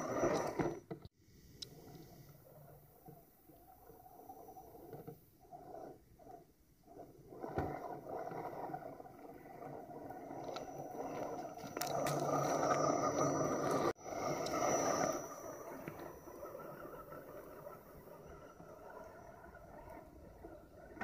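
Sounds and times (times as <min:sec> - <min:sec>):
electric motor whine: 0:09.6 - 0:21.0.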